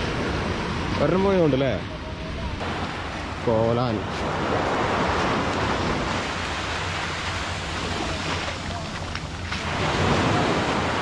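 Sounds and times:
sea waves breaking on sand: 2.6s - 11.0s.

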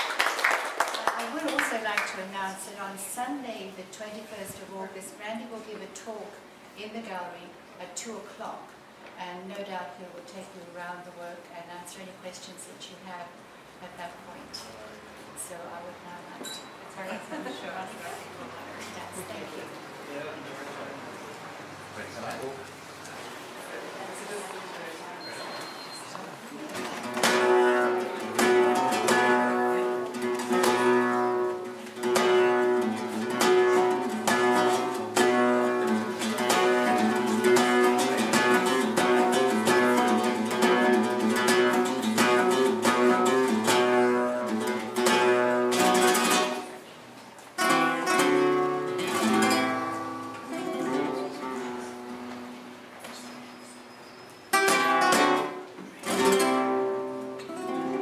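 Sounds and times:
flamenco guitar strumming: 26.7s - 46.8s, 47.6s - 58.0s.

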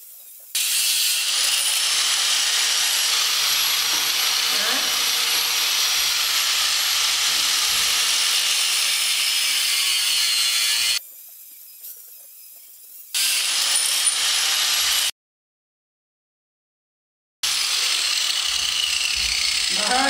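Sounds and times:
angle grinder cutting metal: 0.6s - 11.0s, 13.1s - 15.1s, 17.4s - 20.0s.

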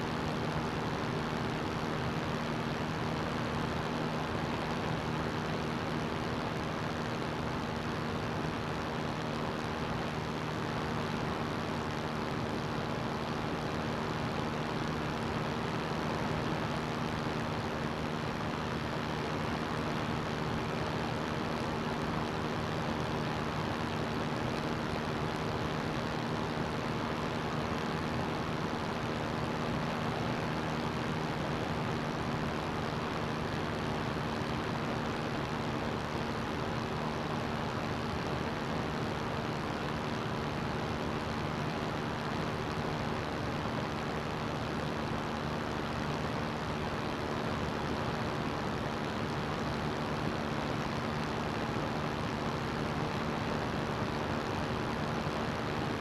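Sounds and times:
ultralight engine and propeller drone: 0.0s - 56.0s.

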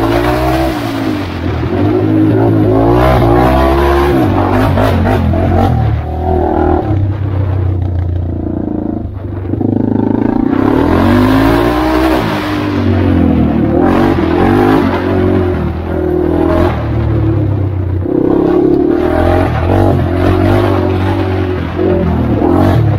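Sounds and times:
atv engine revving: 0.0s - 22.9s.

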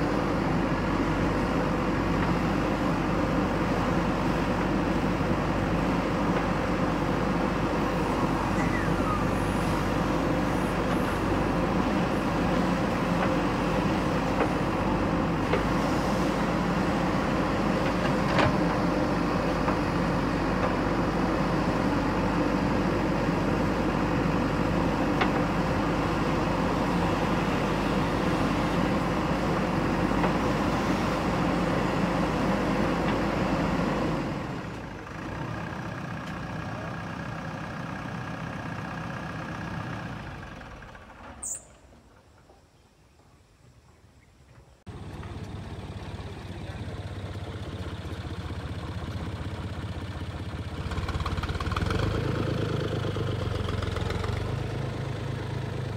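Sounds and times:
diesel engine running: 0.0s - 41.4s, 44.8s - 55.9s.

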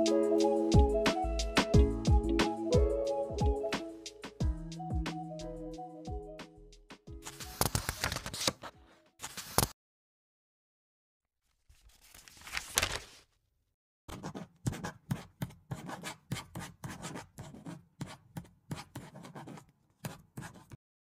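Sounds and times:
paper rustle: 7.2s - 9.7s, 11.5s - 13.3s
pencil writing on paper: 14.1s - 20.8s.

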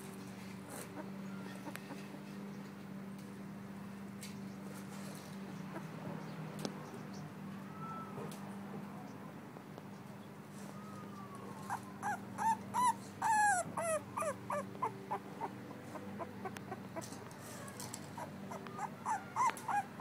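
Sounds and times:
puppy whimpering: 10.9s - 20.0s.

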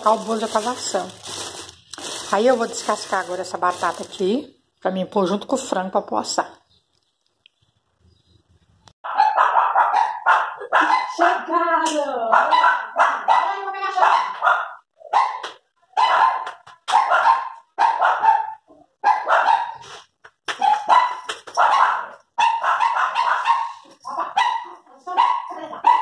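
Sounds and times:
dog barking: 9.0s - 11.4s, 12.3s - 19.9s, 20.6s - 26.0s.

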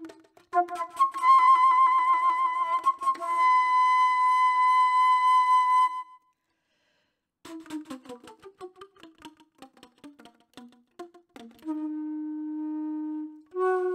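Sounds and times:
flute playing with vibrato: 0.0s - 6.3s, 11.6s - 13.9s.

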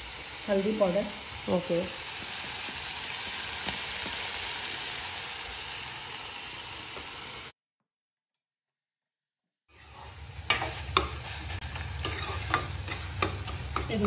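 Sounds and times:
vegetables sizzling in oil: 0.0s - 7.5s, 9.7s - 14.0s.

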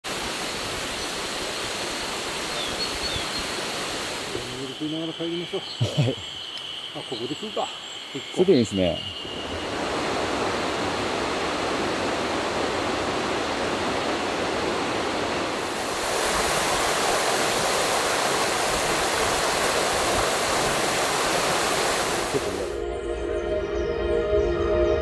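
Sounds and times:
river water flowing: 0.1s - 4.8s, 9.2s - 22.8s.

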